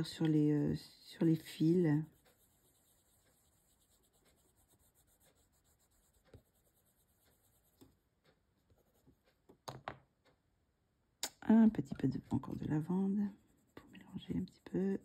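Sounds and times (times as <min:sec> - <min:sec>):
pencil scratching on paper: 0:01.2 - 0:09.4, 0:12.1 - 0:15.0.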